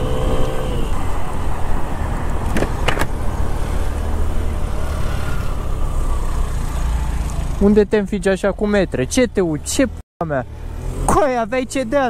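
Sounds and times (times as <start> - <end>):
passing cars: 0.0 - 12.0
road and wind noise: 0.0 - 12.0.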